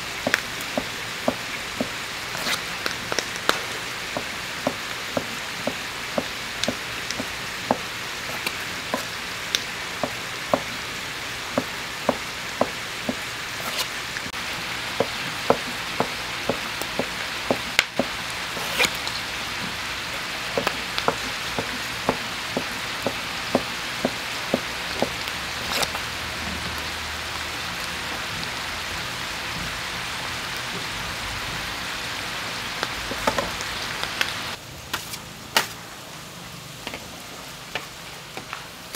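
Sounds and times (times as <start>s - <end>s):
meat sizzling on griddle: 0.0s - 30.7s.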